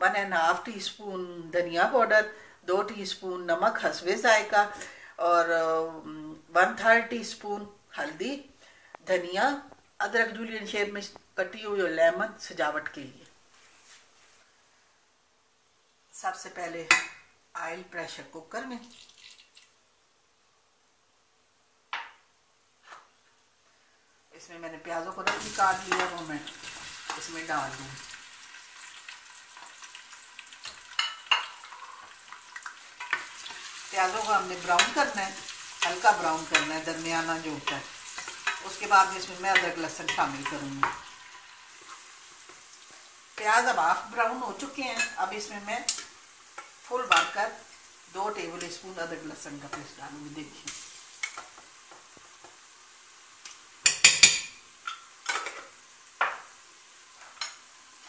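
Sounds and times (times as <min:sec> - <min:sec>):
onions sizzling in oil: 0:24.8 - 0:58.0.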